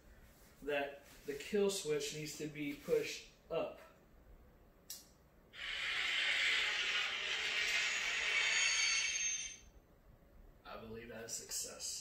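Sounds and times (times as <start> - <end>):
lightsaber hiss from speaker: 5.6 - 9.0.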